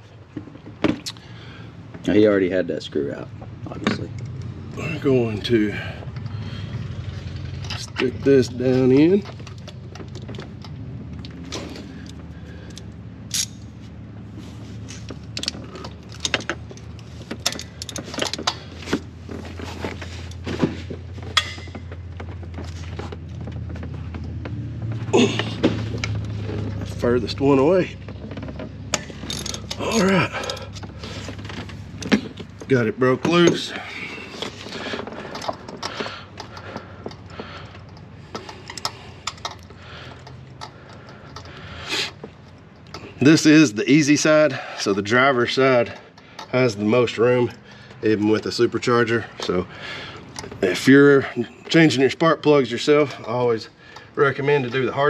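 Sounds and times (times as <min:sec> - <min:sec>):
socket wrench clicking: 0:12.1 - 0:13.7.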